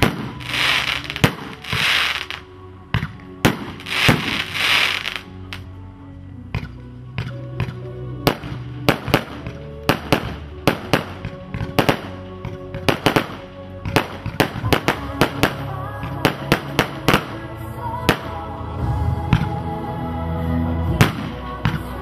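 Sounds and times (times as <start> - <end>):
fireworks bangs: 0.0 - 2.4, 3.0 - 5.3
background music: 0.0 - 22.0.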